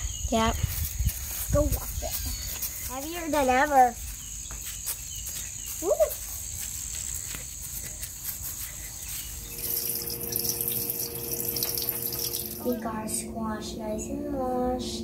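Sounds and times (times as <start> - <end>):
thin steady high tone: 9.3 - 15.0
faucet running water into sink: 9.6 - 12.7.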